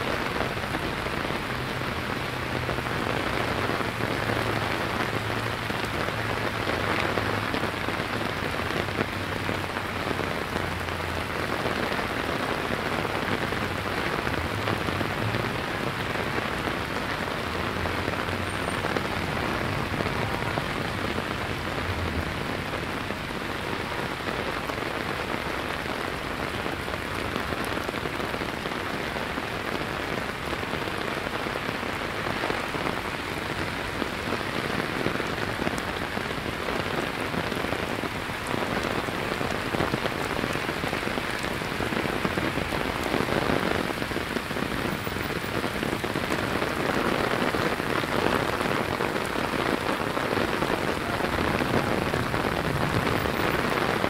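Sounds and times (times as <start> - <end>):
heavy rain on hard surfaces: 0.0 - 54.0.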